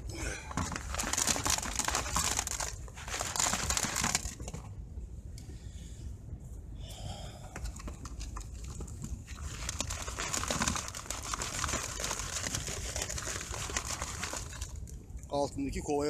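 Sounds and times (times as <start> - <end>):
gravel rattling in plastic sieve: 0.5 - 4.6, 7.8 - 15.0.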